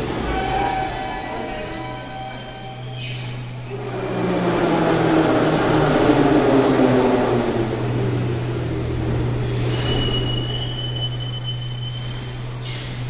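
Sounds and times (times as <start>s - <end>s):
high brake squeal: 0.2s - 3.5s, 9.4s - 13.0s.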